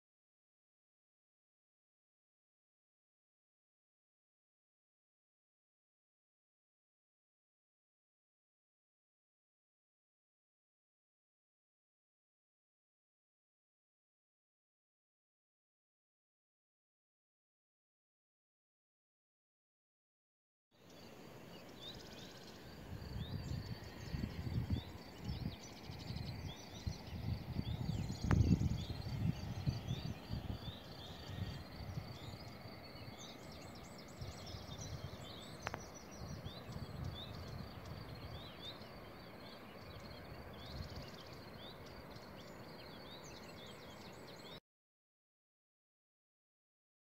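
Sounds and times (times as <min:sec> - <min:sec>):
small birds chirping: 0:20.8 - 0:44.6
wind rumbling on microphone: 0:21.0 - 0:44.5
faint clicks: 0:35.6 - 0:35.9.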